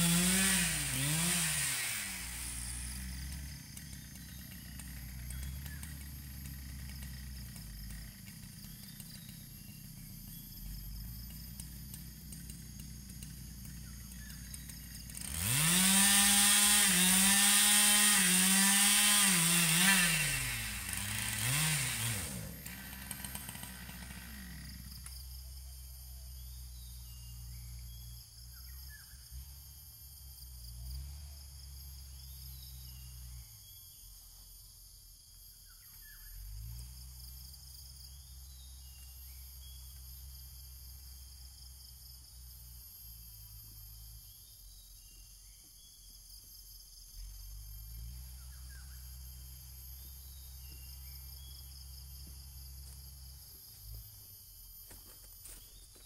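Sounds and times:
high-pitched insect chorus: 0:24.6 - 0:30.7, 0:31.6 - 0:36.4, 0:37.0 - 0:56.0.

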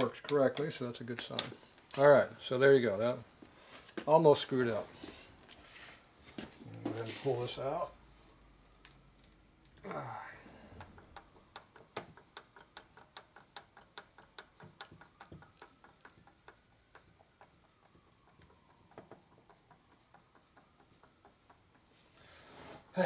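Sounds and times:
rapid light metallic clicking: 0:10.8 - 0:22.2.

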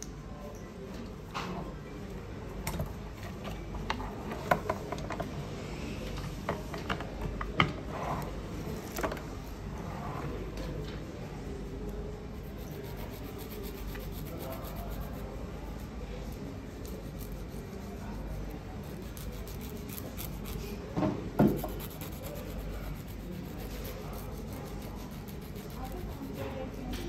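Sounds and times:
nail file rubbing fingernails: 0:12.4 - 0:20.8, 0:21.5 - 0:27.0.

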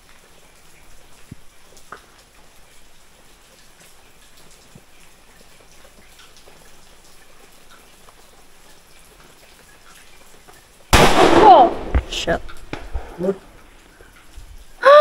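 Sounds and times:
faint outdoor background noise: 0:00.0 - 0:15.0.

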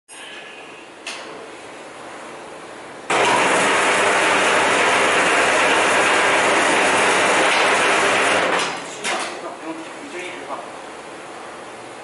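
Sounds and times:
wire stripping machine running: 0:03.1 - 0:09.0.

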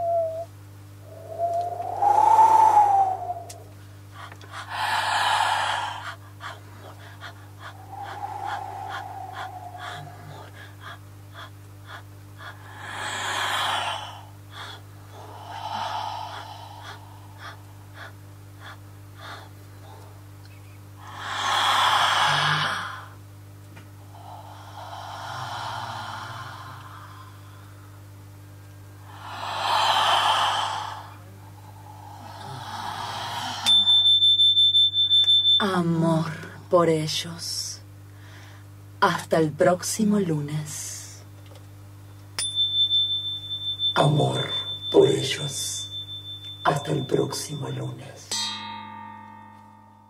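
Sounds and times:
electrical hum: 0:00.0 - 0:50.0
person gasping and panting: 0:04.1 - 0:20.1, 0:29.1 - 0:33.7
sustained electronic tone: 0:42.4 - 0:50.0.

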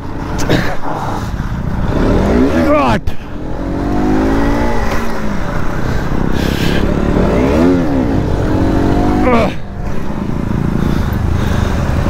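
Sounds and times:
motorcycle engine revving: 0:01.6 - 0:12.0.

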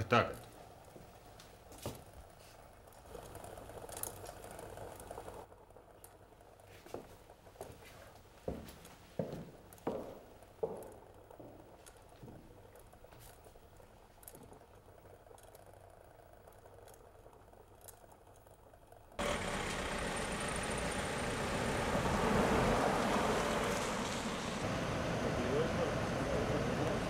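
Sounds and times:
faint ticks: 0:09.8 - 0:19.1
car driving along street: 0:19.2 - 0:27.0
traffic noise: 0:19.2 - 0:27.0.

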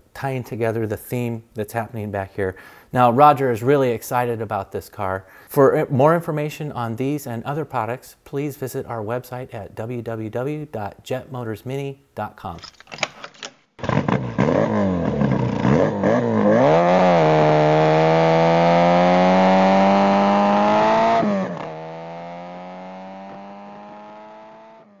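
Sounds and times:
car engine revving and accelerating: 0:13.8 - 0:25.0.

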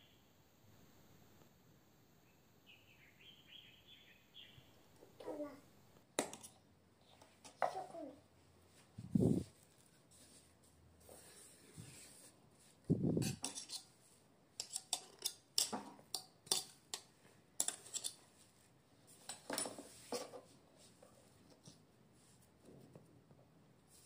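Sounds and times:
spatula scraping a steel bowl: 0:13.2 - 0:14.0, 0:14.6 - 0:17.0, 0:17.6 - 0:18.2.

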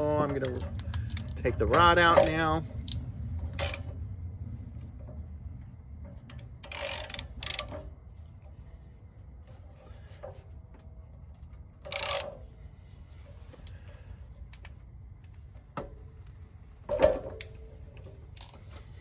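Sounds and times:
low steady rumble: 0:00.0 - 0:19.0
socket wrench metallic rasps: 0:00.4 - 0:02.6, 0:03.4 - 0:03.9, 0:06.3 - 0:07.9, 0:11.8 - 0:12.5.

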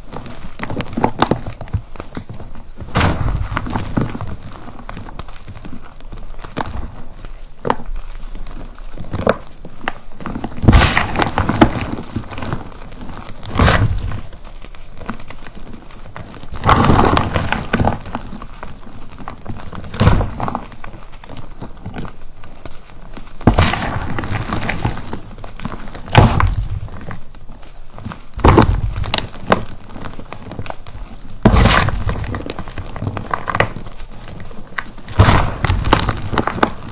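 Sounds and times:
gritty crackle and crunch: 0:00.0 - 0:36.9.

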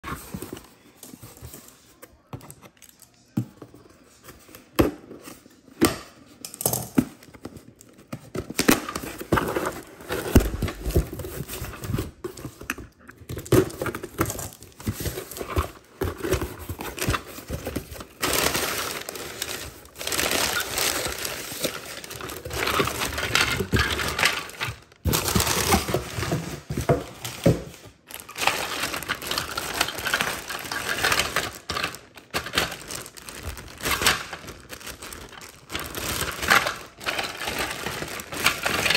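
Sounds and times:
cardboard rustling and tearing: 0:07.4 - 0:38.9
plastic bag crinkling: 0:13.6 - 0:38.9.

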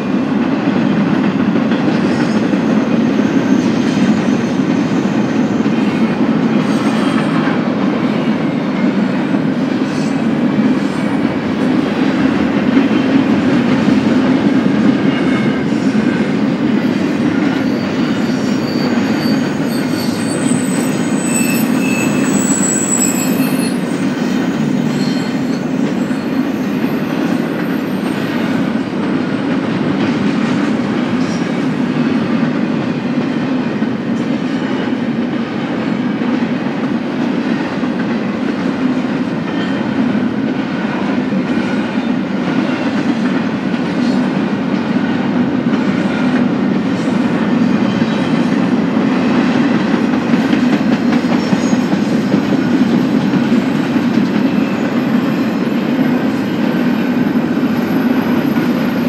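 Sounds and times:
freight train wheels rumbling on rail: 0:00.0 - 0:59.0
high wheel squeals: 0:17.4 - 0:28.4.

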